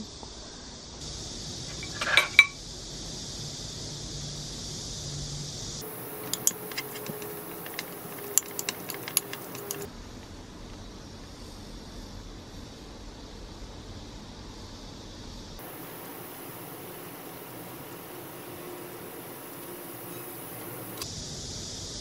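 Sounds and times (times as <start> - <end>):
steady hiss: 0.0 - 22.0
metal spoon clinking on ceramic bowl: 1.8 - 2.6, 6.2 - 9.9.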